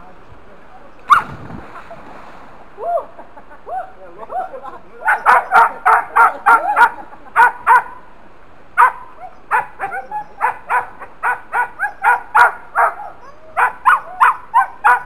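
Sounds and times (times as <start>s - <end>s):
dog barking: 1.1s - 1.3s, 5.1s - 8.0s, 8.8s - 15.0s.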